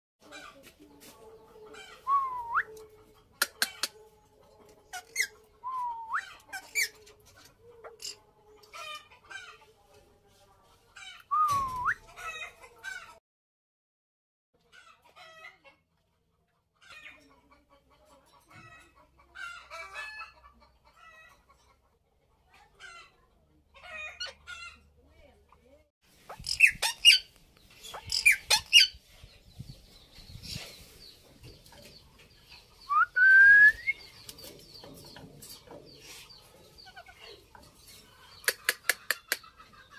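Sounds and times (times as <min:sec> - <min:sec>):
parakeets chattering and chirping: 0:06.3 - 0:08.2, 0:26.1 - 0:29.0, 0:33.9 - 0:39.9
parakeets calling: 0:26.2 - 0:28.9.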